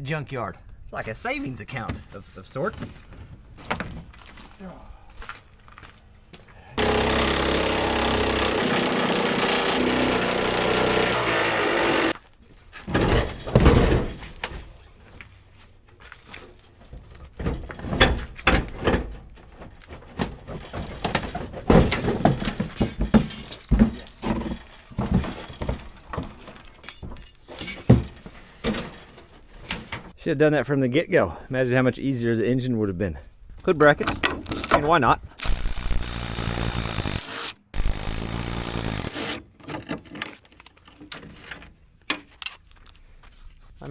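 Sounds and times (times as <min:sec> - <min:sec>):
metal clanks and knocks: 0:12.8 - 0:14.8, 0:16.8 - 0:30.2.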